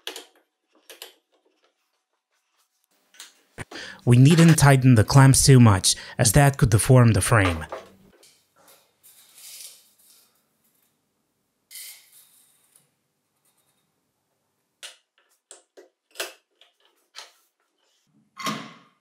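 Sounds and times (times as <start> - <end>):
soft rustling scrapes: 1.8 - 3.0.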